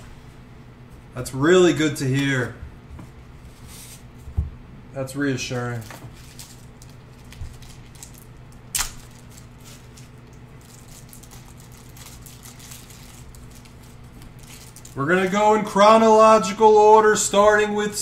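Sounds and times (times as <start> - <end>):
steady low hum: 0.0 - 18.0
plastic packaging crinkling: 5.6 - 15.0.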